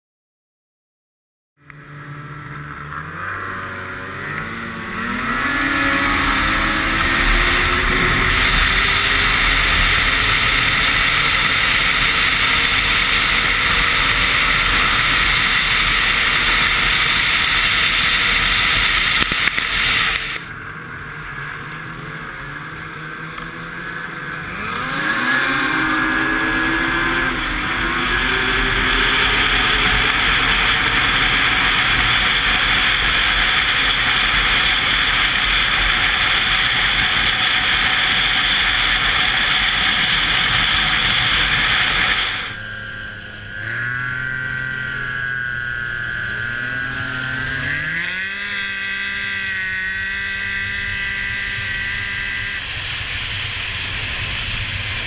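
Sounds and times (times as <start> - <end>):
snowmobile engine revving: 1.6 - 55.0
wind rush on microphone: 4.9 - 20.4.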